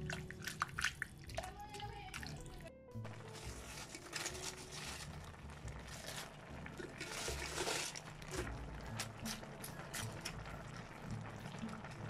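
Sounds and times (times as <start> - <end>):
broth bubbling in a wok: 3.1 - 12.0.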